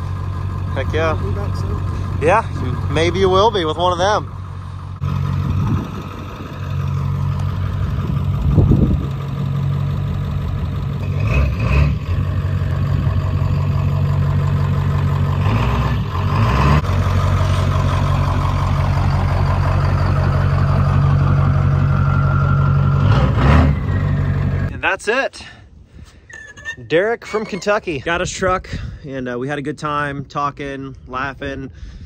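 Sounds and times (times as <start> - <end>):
diesel pickup engine revving: 0.0 - 24.7.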